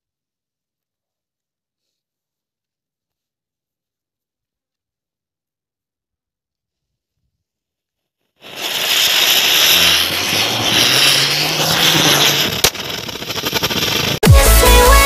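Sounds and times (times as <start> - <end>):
ground spinner firecracker hissing: 8.4 - 14.2
sharp firecracker crack: 8.4 - 14.2
rapid crackling: 8.4 - 14.8.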